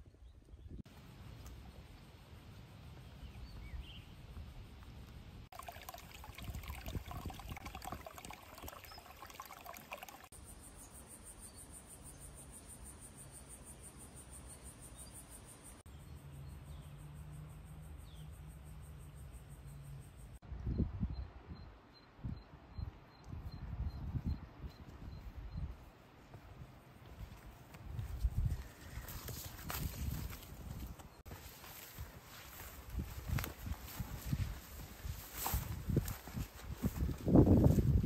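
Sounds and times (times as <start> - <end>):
wind rumble on microphone: 6.2 - 9.0, 20.4 - 25.9, 26.5 - 31.2, 32.0 - 38.0.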